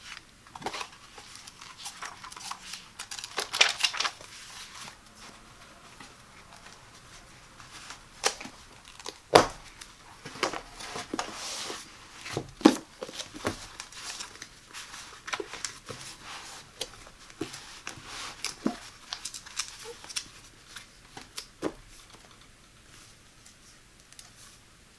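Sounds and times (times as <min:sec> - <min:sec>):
paper rustling and sliding: 0:00.0 - 0:22.2.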